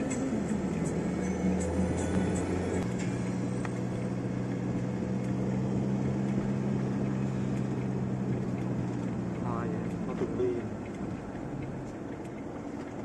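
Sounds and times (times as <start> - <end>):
road noise: 0.0 - 13.0
vehicle engine droning: 0.0 - 13.0.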